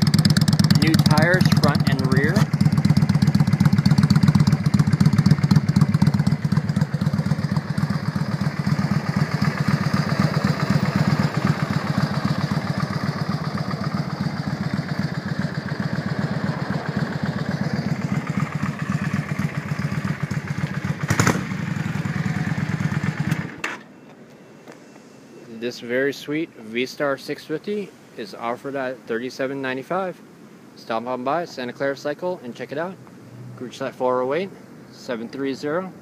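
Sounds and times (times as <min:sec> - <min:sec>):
motorcycle engine idling: 0:00.0 - 0:23.6.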